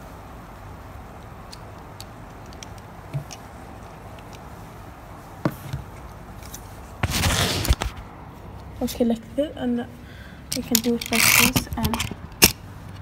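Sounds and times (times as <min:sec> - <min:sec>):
steady low hum: 0:00.0 - 0:13.0
rustling: 0:03.1 - 0:08.5.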